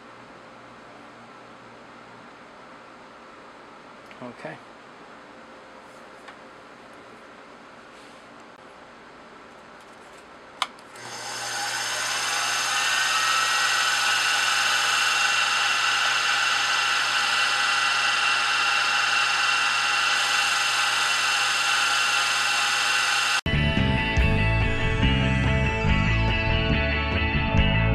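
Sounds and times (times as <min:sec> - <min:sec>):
milling spindle whining: 0:10.9 - 0:23.4.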